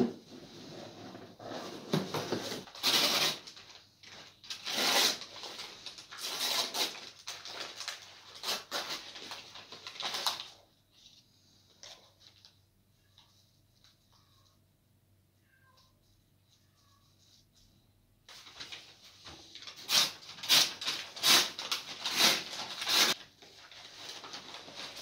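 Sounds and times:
paper rustling and crinkling: 1.5s - 12.6s, 18.3s - 25.0s.

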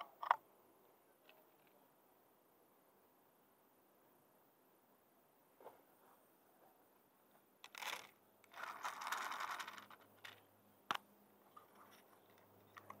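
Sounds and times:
cat crunching dry food: 7.6s - 10.0s.

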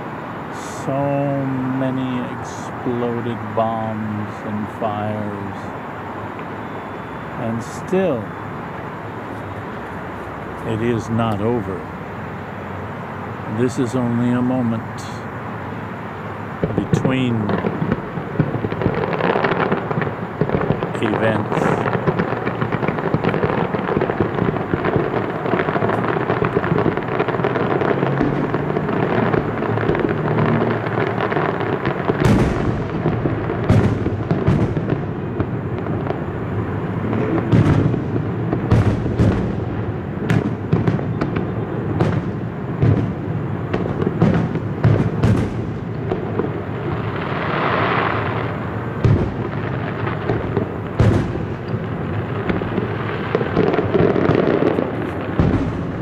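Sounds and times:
fireworks exploding: 0.0s - 56.0s
sharp firework bangs: 16.6s - 56.0s.

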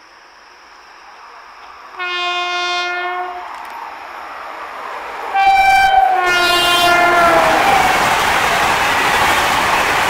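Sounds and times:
rush of passing train: 0.0s - 10.0s
locomotive horn blasts: 2.0s - 3.4s, 5.4s - 7.6s.

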